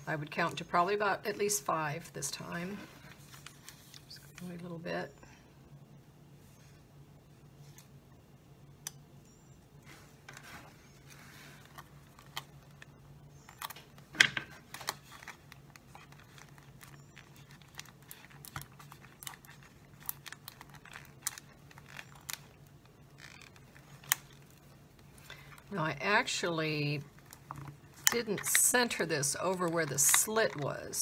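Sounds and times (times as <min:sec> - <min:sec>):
faint low hum: 0:00.0 - 0:31.0
thin plastic crinkling: 0:02.8 - 0:04.6, 0:09.9 - 0:31.0.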